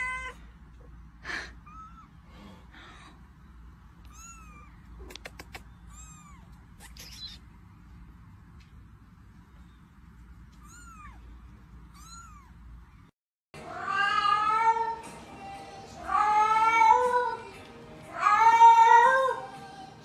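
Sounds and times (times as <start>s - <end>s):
cat meowing loudly: 4.0s - 4.8s, 10.5s - 11.3s, 18.1s - 19.4s
kitten mewing: 4.0s - 7.5s, 10.6s - 11.3s.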